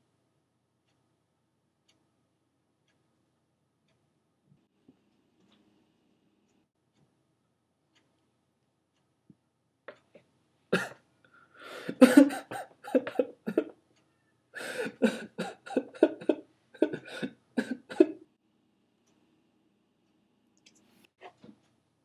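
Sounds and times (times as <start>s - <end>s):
man coughing: 10.8s - 11.0s, 11.8s - 13.7s, 14.6s - 18.2s.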